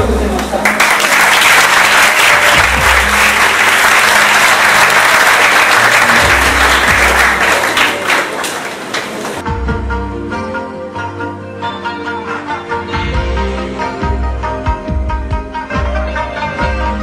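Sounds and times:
music playing: 0.0s - 17.0s
audience applauding: 0.2s - 9.4s.

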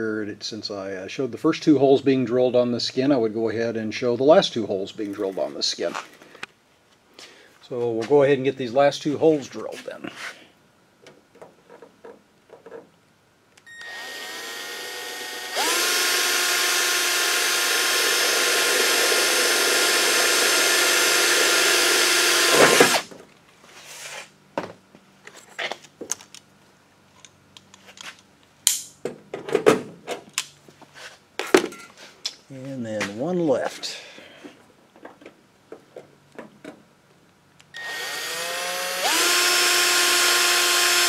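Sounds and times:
drill whining through metal: 13.7s - 23.1s, 37.8s - 41.0s.

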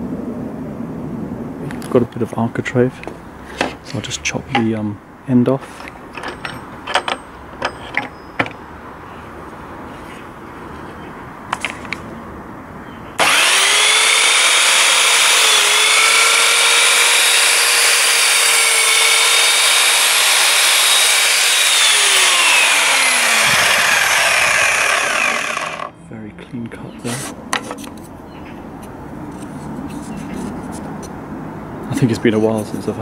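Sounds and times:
mitre saw motor whine: 13.2s - 25.9s.

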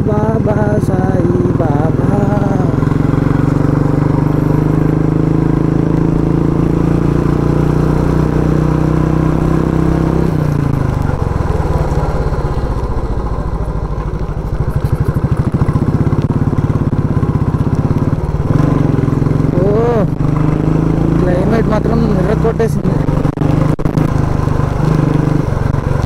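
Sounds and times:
motorcycle engine running: 0.0s - 26.0s.

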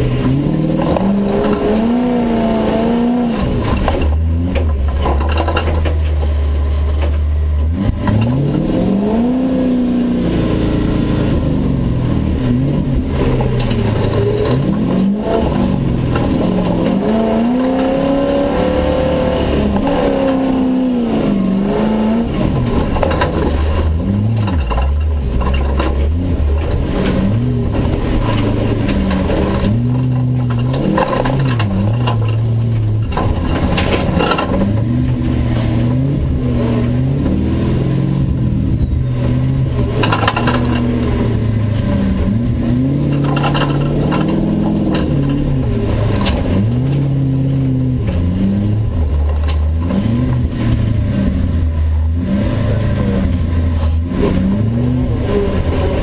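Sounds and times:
road noise: 0.0s - 56.0s
truck engine revving: 0.0s - 56.0s.

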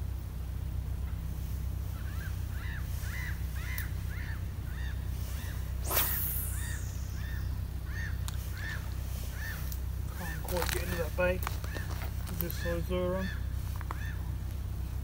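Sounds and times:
low rumble: 0.0s - 15.0s
bird chirping: 1.9s - 14.2s
fishing rod swishing: 5.3s - 7.4s.

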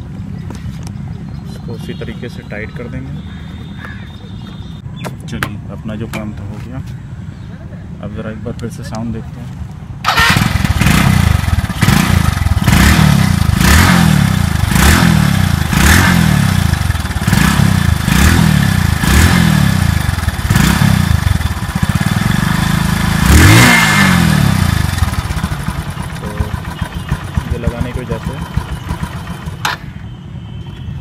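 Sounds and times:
motorcycle engine revving: 10.0s - 29.8s.

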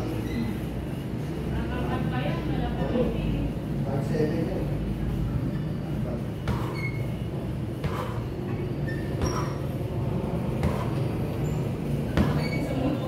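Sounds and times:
kicks thudding on punching bag: 6.4s - 6.8s, 7.8s - 8.3s, 10.4s - 11.2s, 12.0s - 12.6s.

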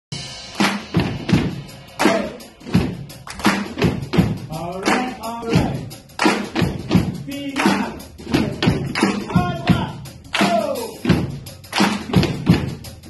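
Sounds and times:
drum kit: 0.1s - 13.0s
claps slaps and stomps: 0.6s - 1.0s, 3.2s - 4.0s, 6.2s - 6.8s, 7.6s - 9.4s, 10.3s - 10.6s, 11.7s - 12.7s.

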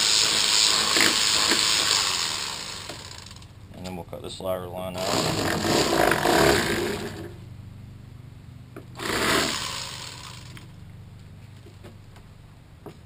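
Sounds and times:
electric knife motor hum: 0.0s - 3.5s, 8.9s - 10.8s.

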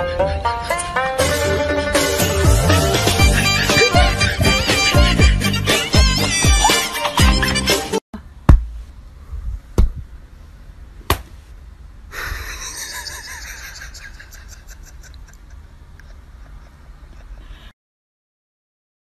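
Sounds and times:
music: 0.0s - 8.0s
sharp knocks: 8.5s - 8.8s, 9.8s - 10.0s, 11.1s - 11.3s.

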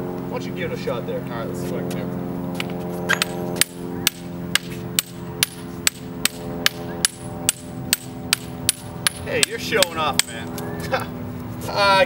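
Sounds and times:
steady low hum: 0.0s - 12.0s
steel ball bouncing on sledgehammer: 3.1s - 10.4s.

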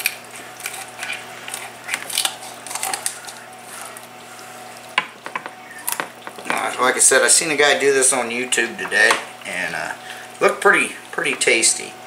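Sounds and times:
kitchen shears cutting bone: 0.0s - 4.2s.

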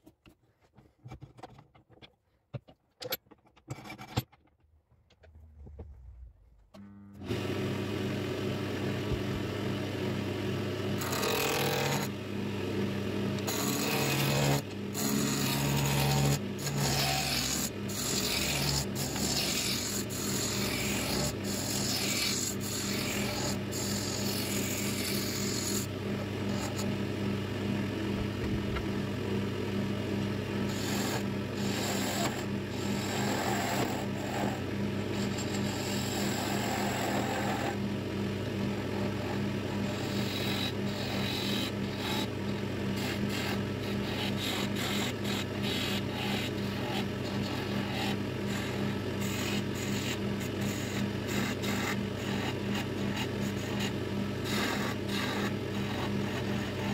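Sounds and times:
lathe motor hum: 7.2s - 56.9s
gouge cutting wood: 11.0s - 12.2s, 13.4s - 26.9s, 30.6s - 37.8s, 38.9s - 56.9s.

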